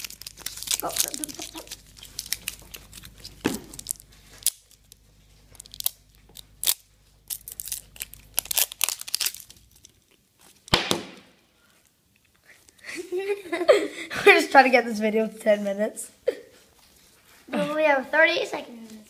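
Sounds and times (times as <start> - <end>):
foil wrapper crinkling and tearing: 0.0 - 10.7.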